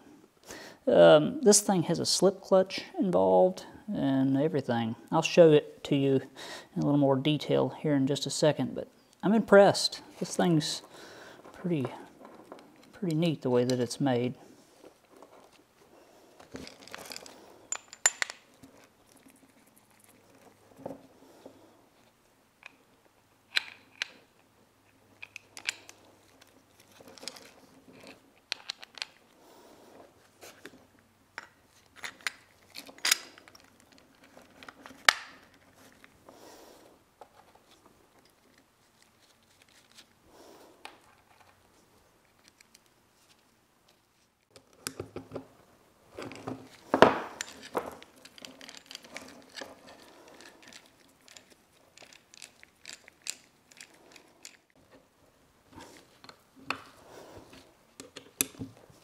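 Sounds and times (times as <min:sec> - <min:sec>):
metal parts clinking and clicking: 0:16.4 - 0:20.5, 0:25.2 - 0:29.3, 0:31.4 - 0:36.1, 0:46.2 - 0:54.8.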